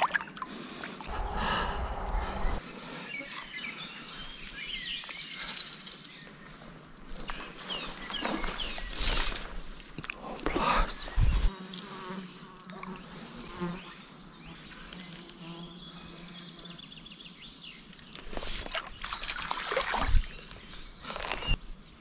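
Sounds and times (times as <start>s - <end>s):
fly buzzing: 11.1s - 14.2s.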